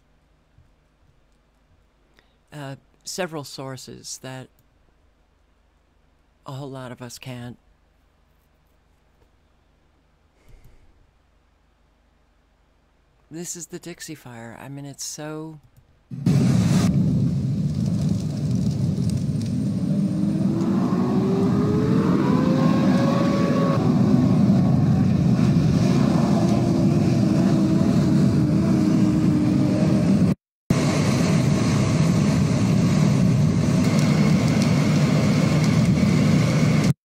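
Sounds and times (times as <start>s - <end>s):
wildfire rumble: 16.1s - 36.9s
vehicle engine: 16.3s - 36.9s.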